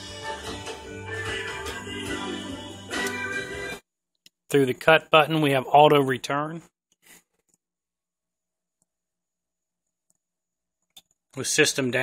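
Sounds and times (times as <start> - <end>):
music from vinyl record: 0.0 - 3.8.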